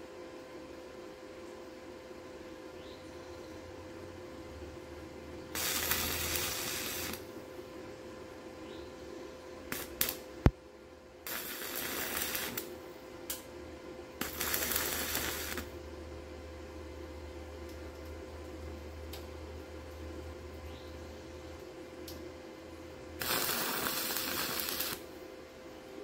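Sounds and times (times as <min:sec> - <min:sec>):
steady hum: 0:00.0 - 0:26.0
welder arc crackling hiss: 0:05.5 - 0:07.4, 0:09.7 - 0:10.6, 0:11.2 - 0:13.5, 0:14.2 - 0:15.8, 0:23.2 - 0:25.1.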